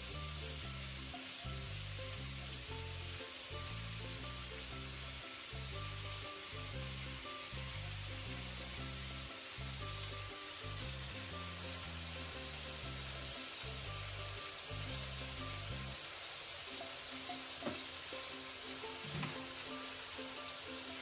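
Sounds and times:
background music with bass line: 0:00.0 - 0:16.0
chicken sizzling in oil: 0:00.0 - 0:21.0.

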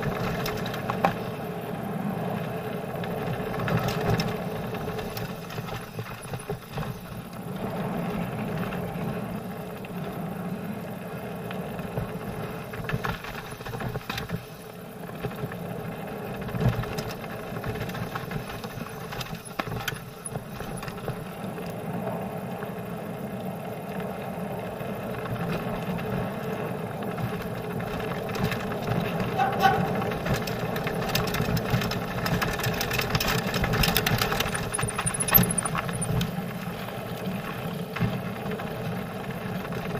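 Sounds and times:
bike tyres rumbling: 0:00.0 - 0:39.9
bike clattering over stones: 0:03.0 - 0:07.2, 0:11.9 - 0:21.4, 0:27.0 - 0:39.9.

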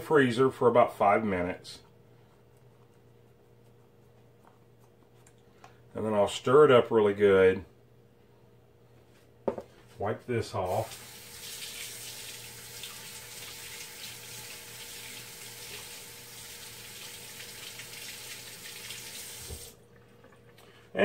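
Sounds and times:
tap running into sink: 0:19.3 - 0:19.8.

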